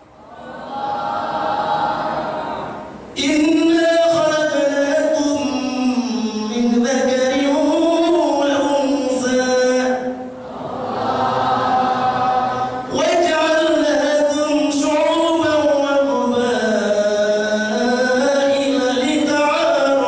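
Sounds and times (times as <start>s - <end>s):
man chanting into a microphone: 3.2s - 10.4s, 12.5s - 20.0s.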